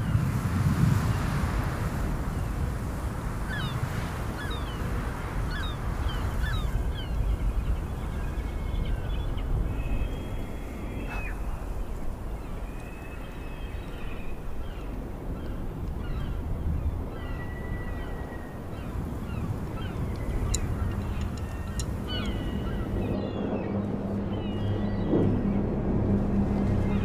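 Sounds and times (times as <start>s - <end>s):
low wind rumble: 0.0s - 27.0s
birds calling: 4.4s - 23.6s.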